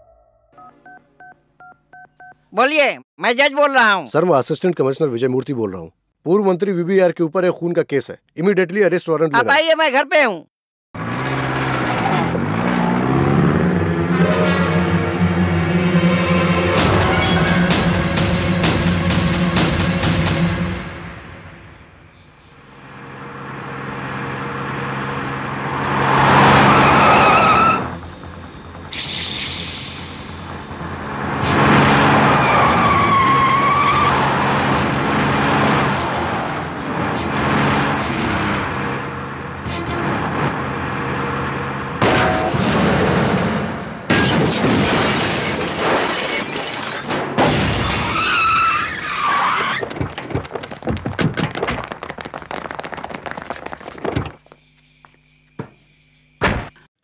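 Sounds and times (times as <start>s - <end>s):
vehicle approaching: 11.0s - 21.6s, 22.6s - 44.1s
tyres squealing: 26.0s - 31.0s, 31.8s - 41.9s, 47.8s - 54.5s
squeal bending in pitch: 26.4s - 28.0s
glass shattering: 44.1s - 48.6s.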